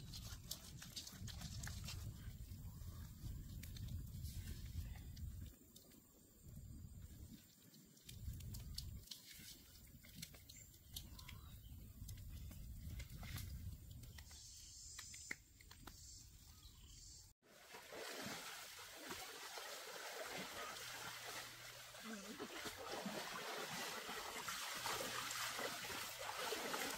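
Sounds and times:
stream rushing: 17.5 - 26.9.

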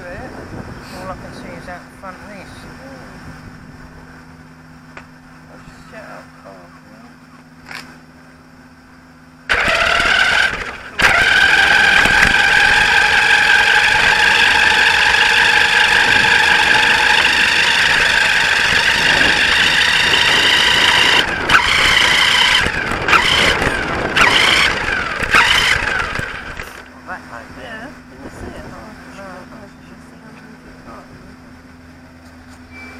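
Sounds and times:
toy car motor whining: 9.5 - 26.8.

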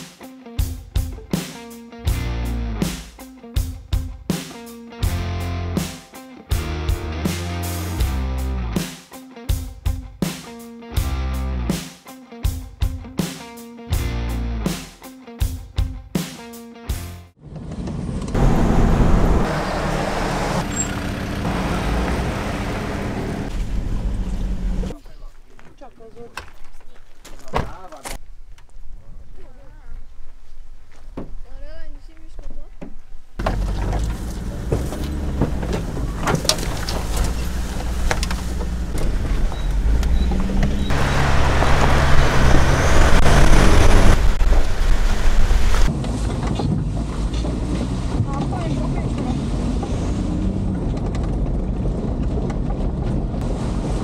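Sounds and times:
vehicle engine drone: 17.4 - 24.9, 33.4 - 54.0
tyre and road noise: 17.4 - 54.0.

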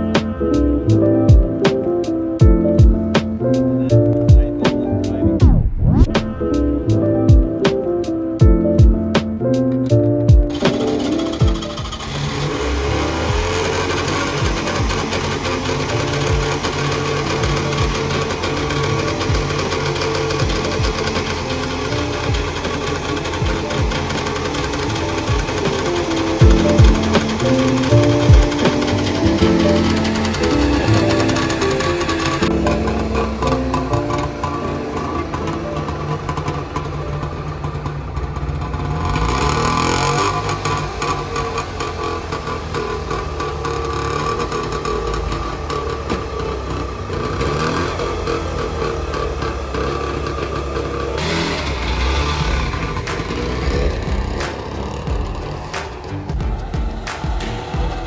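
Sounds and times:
two-stroke car engine running: 0.0 - 5.6, 6.2 - 58.0
background music: 0.0 - 58.0
bass drum thumping: 1.3 - 1.5, 2.4 - 3.3, 4.2 - 6.5, 7.2 - 7.7, 8.4 - 9.2, 10.3 - 10.5, 20.4 - 21.0, 23.4 - 23.9, 26.4 - 27.2, 28.3 - 28.7, 52.4 - 58.0.

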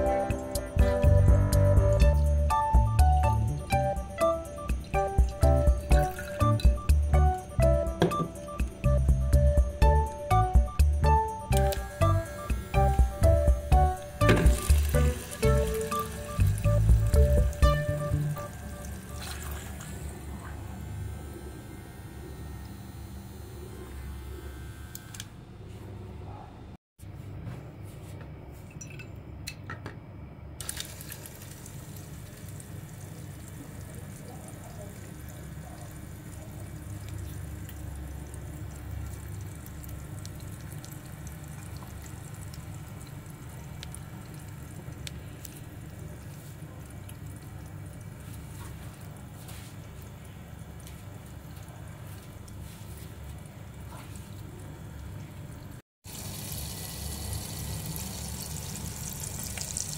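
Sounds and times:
small pump motor humming: 0.0 - 25.7, 56.1 - 59.9
water splashing and dripping: 14.0 - 20.1, 35.3 - 59.9.

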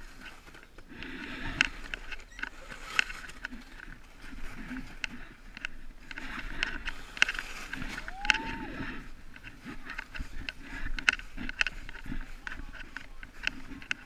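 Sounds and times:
plastic sled scraping over snow: 0.0 - 14.0.

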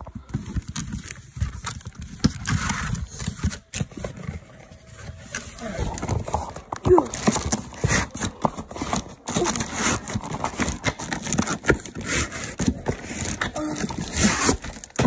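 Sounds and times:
cardboard and plastic crinkling: 0.0 - 15.0.

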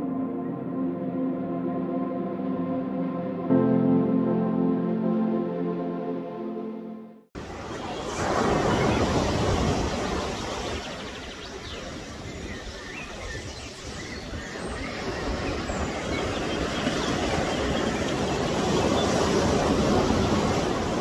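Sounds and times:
surf washing up beach: 7.4 - 21.0.

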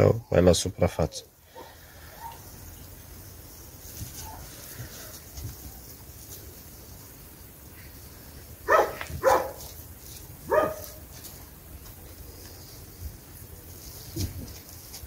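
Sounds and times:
dog barking: 1.6 - 2.4, 8.6 - 9.7, 10.5 - 11.0.

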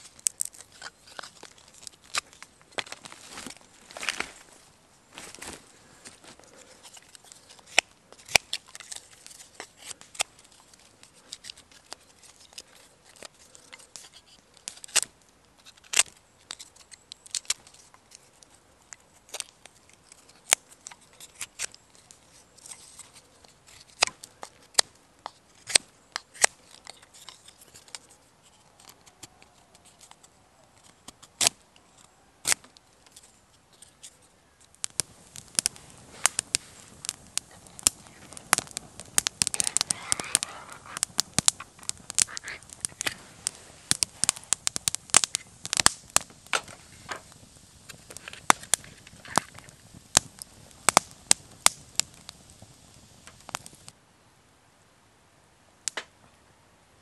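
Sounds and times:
knife carving wooden stick: 0.1 - 3.0, 19.0 - 36.4
quick crackles: 34.8 - 54.0.

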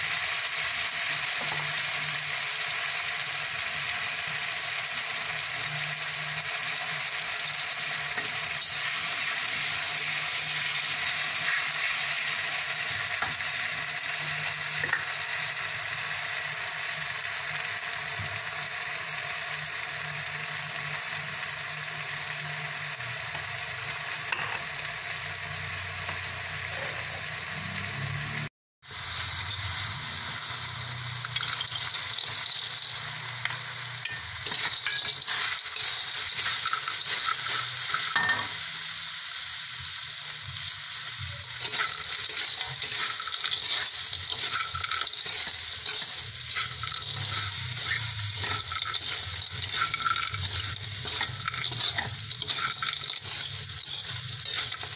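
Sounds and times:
sizzling in hot oil: 0.0 - 54.9
spatula scraping wok: 5.4 - 15.1, 28.9 - 39.0, 40.2 - 54.9.

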